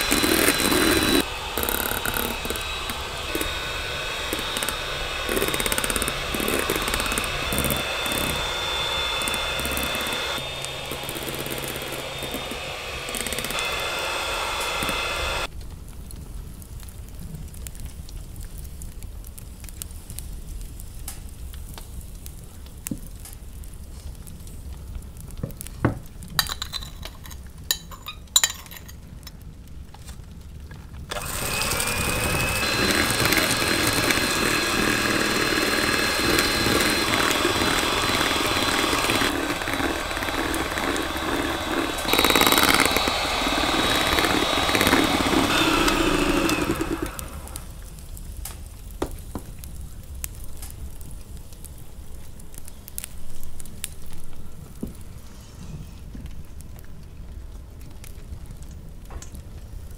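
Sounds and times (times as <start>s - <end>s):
electric hand mixer whirring: 0.0s - 15.5s, 31.1s - 47.9s.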